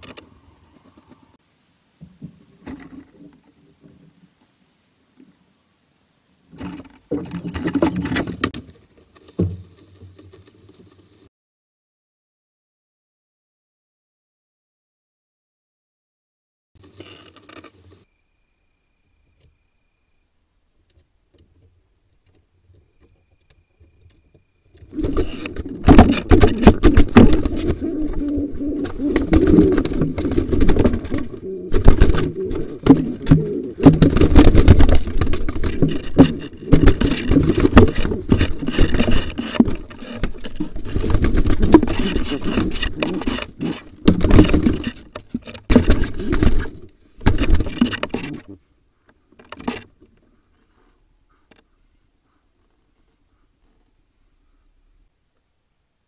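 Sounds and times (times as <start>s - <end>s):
birds knocking against wooden box: 24.8s - 48.4s
wings beating: 24.8s - 48.4s.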